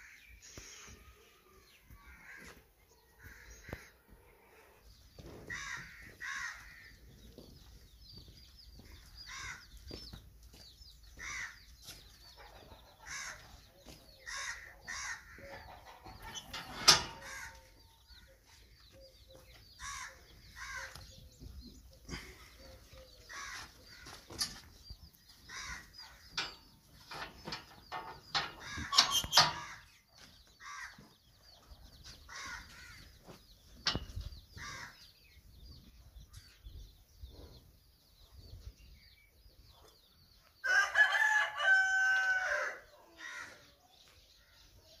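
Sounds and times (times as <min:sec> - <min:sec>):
chickens clucking: 0:11.8 - 0:36.0
rooster crowing: 0:40.6 - 0:42.8.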